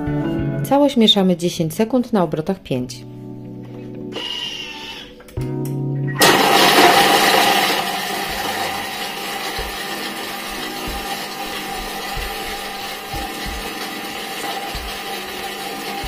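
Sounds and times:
food processor blade motor: 0:04.1 - 0:05.1, 0:06.2 - 0:16.0.

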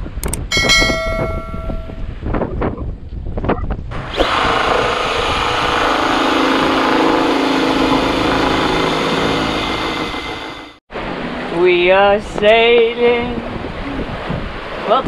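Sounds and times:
wind noise on microphone: 0:00.0 - 0:08.9, 0:11.0 - 0:15.0
cordless drill drilling metal: 0:04.1 - 0:10.6
sea: 0:10.8 - 0:15.0.

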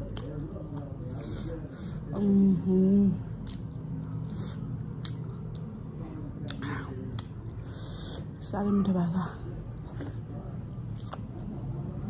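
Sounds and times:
chewing with wet mouth smacks: 0:00.0 - 0:02.0, 0:03.3 - 0:08.4, 0:09.5 - 0:12.0.

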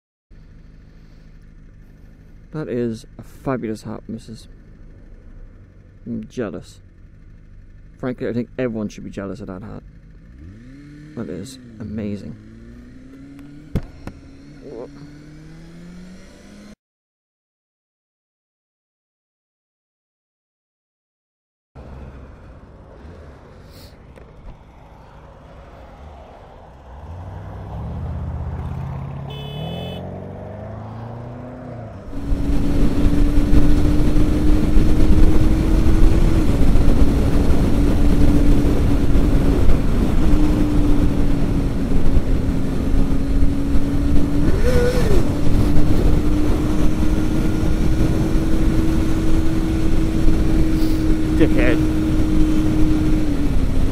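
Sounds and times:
motorcycle engine accelerating: 0:00.4 - 0:16.8, 0:21.8 - 0:53.9
wind noise on microphone: 0:32.2 - 0:50.8.

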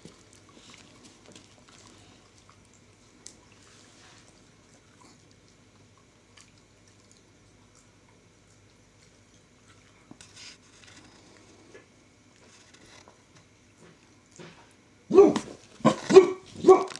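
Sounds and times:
dog chewing and lip-smacking: 0:00.0 - 0:10.2.

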